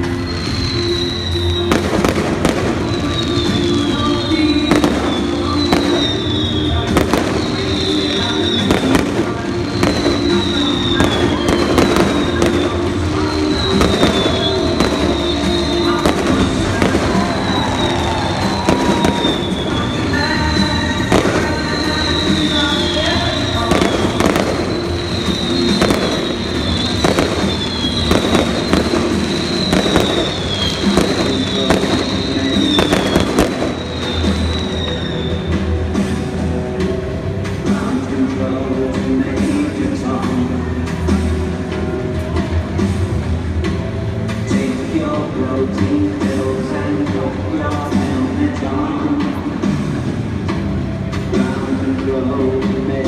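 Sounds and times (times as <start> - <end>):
high falling whistle: 0.0 - 35.8
fireworks bangs and crackles: 0.0 - 53.0
music in a stadium: 0.0 - 53.0.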